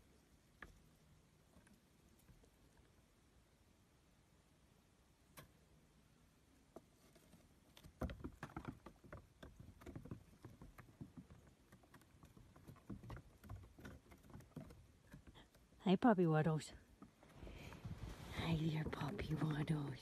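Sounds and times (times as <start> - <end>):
goat hooves tapping on wooden boards: 6.8 - 15.8.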